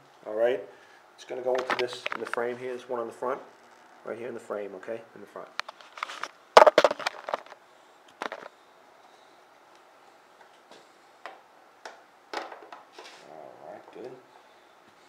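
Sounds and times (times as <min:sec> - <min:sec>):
plastic cover clicks and knocks: 0:06.6 - 0:07.6, 0:08.2 - 0:08.5.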